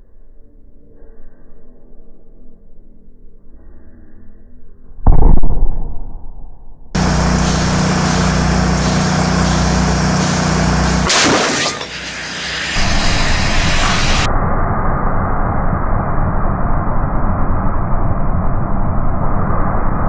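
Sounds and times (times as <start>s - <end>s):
motor humming: 7.0s - 14.3s
loud rush of noise: 7.0s - 20.0s.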